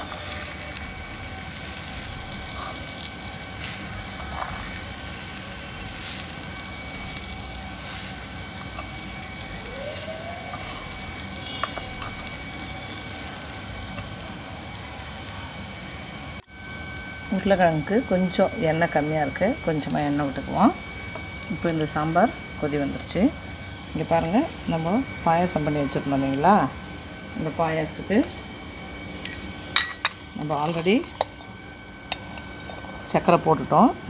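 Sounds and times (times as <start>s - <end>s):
spoon stirring in clay pot: 1.8s - 5.4s, 6.0s - 13.0s, 29.2s - 32.9s.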